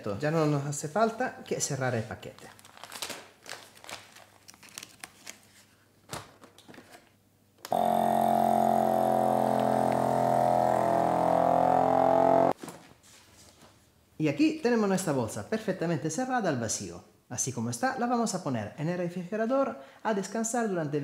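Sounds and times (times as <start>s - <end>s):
plastic bag rustling: 2.3s - 6.9s
vacuum sealer pump humming: 7.7s - 12.6s.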